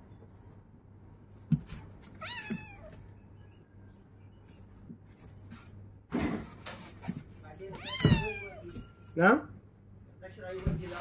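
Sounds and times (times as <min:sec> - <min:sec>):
kitten meowing: 0:02.2 - 0:03.0, 0:07.7 - 0:08.6.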